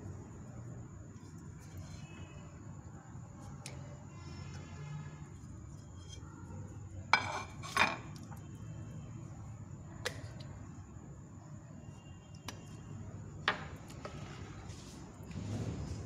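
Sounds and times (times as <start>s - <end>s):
kitchenware clinking: 7.1s - 8.2s.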